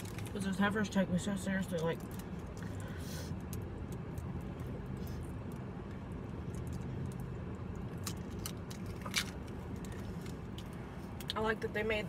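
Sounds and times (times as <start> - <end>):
food clicks and crinkles: 0.0 - 0.4, 6.4 - 10.7
low hum inside a car: 0.0 - 12.0.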